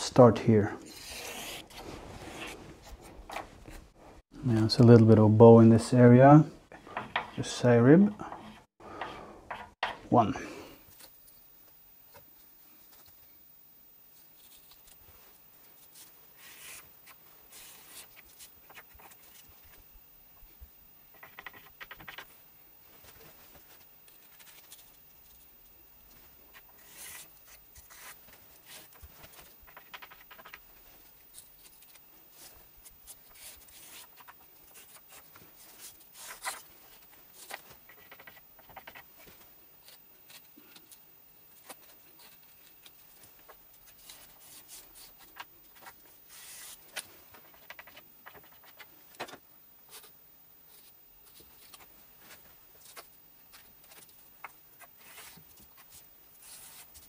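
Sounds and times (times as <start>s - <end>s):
scratching and scraping on wood: 6.7s - 10.0s, 14.3s - 19.9s, 21.0s - 41.0s, 41.6s - 50.1s, 50.7s - 57.0s.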